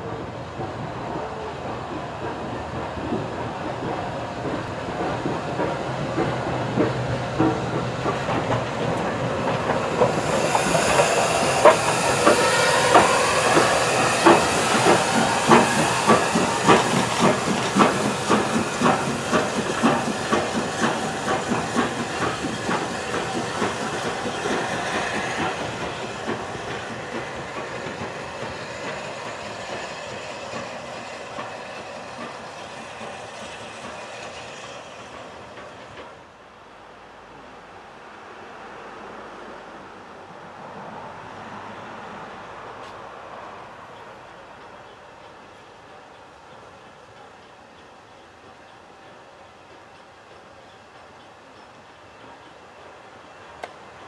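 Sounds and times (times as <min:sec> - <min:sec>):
steam locomotive hissing: 0:00.0 - 0:36.4
locomotive chuffing exhaust: 0:01.4 - 0:36.0.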